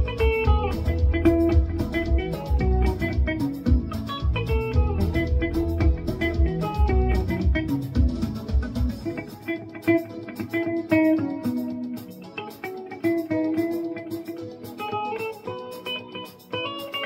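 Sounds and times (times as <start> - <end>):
low bass backing: 0.0 - 9.1
electric guitar melody: 0.0 - 17.0.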